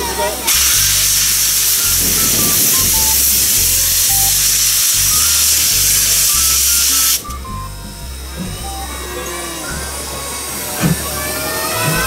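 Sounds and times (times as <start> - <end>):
steam hissing: 0.0 - 7.5
background music: 0.0 - 12.0.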